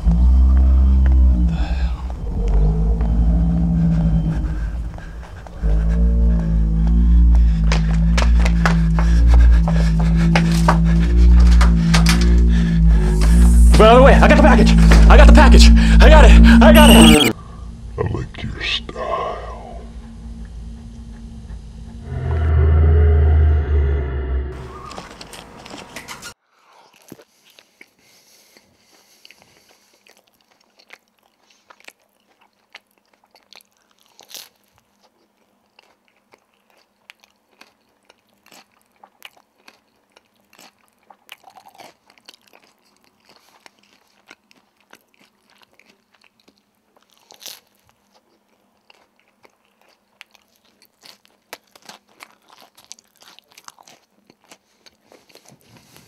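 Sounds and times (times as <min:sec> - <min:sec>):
crackling and crunching clicks: 0:10.1 - 0:15.6.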